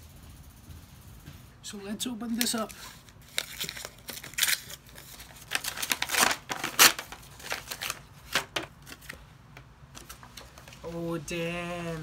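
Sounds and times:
paper rustling and crinkling: 2.3s - 9.2s.

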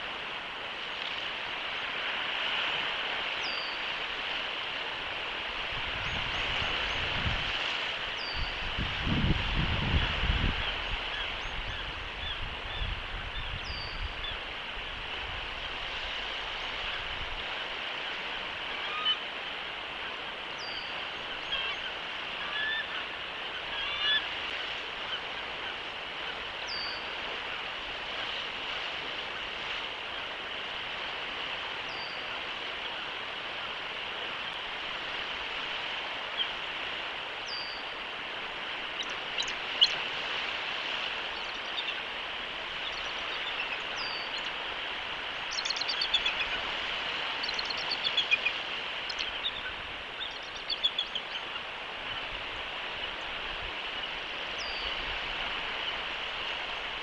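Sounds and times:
eagle calling: 45.3s - 51.6s.

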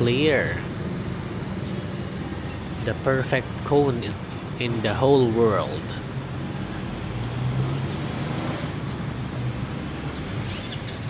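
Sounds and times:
low urban hum and rumble: 0.0s - 11.0s.

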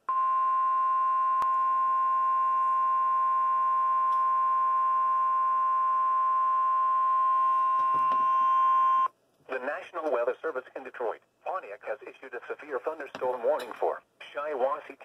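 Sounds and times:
steady alarm beep: 0.1s - 9.1s.

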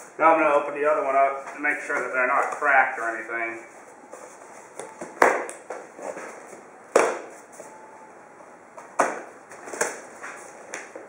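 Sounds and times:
rustling of strap and cardboard: 1.4s - 7.8s.

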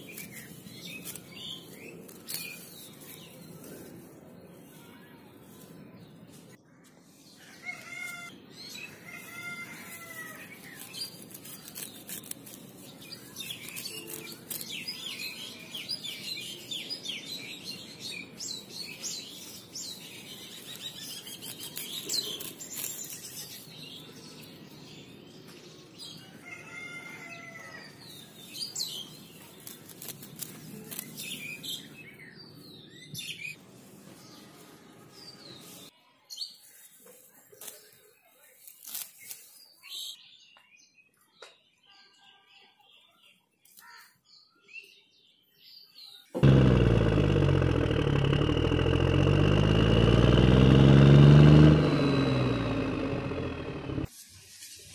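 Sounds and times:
grass rustling and snapping: 0.0s - 3.9s, 9.8s - 15.4s, 20.5s - 23.7s, 29.3s - 31.6s, 37.2s - 38.0s, 38.6s - 39.6s, 46.4s - 54.1s
small birds chirping: 0.0s - 26.7s, 27.4s - 54.1s.

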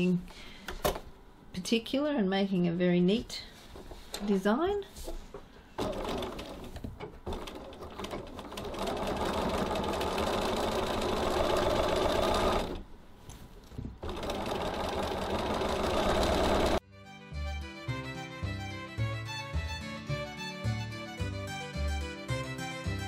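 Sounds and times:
sewing machine running: 5.8s - 12.8s, 14.0s - 16.8s.

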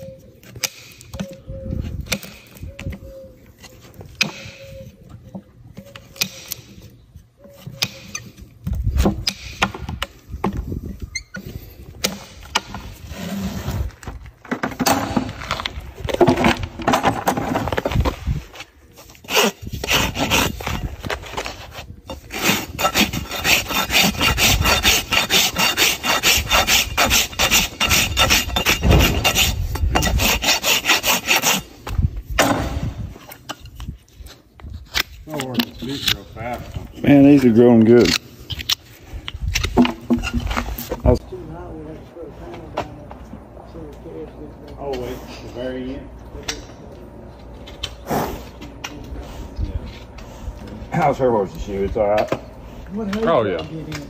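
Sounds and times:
scraping and prying: 5.3s - 41.2s
rasp filing a hoof: 19.0s - 32.0s.

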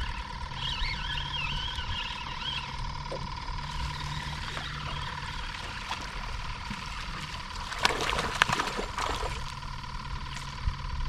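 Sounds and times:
fish splashing at water surface: 3.7s - 9.7s.

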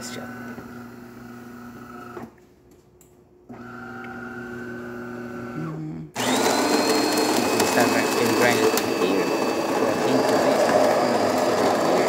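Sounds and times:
coffee grinder: 3.6s - 12.0s
espresso machine motor whirring: 3.6s - 12.0s.

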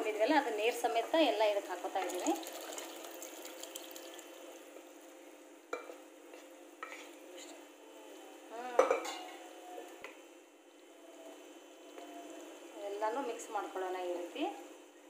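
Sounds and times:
steady sizzle: 0.0s - 15.0s
liquid poured into a pan: 1.9s - 4.7s
spoon scraping a pan: 5.8s - 7.6s.

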